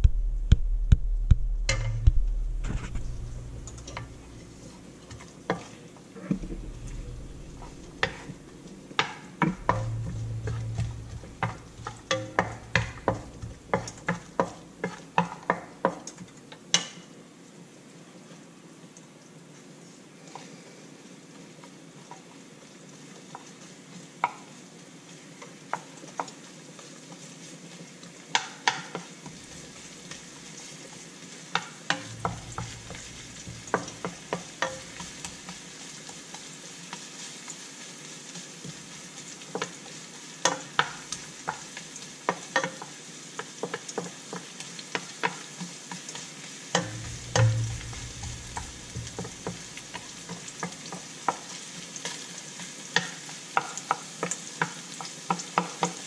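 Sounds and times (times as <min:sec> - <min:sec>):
short low thud: 0:00.0 - 0:04.5
wooden spatula scraping pan: 0:02.6 - 0:15.1, 0:31.9 - 0:35.6, 0:46.8 - 0:50.6
onions sizzling in oil: 0:02.7 - 0:17.1, 0:19.6 - 0:56.0.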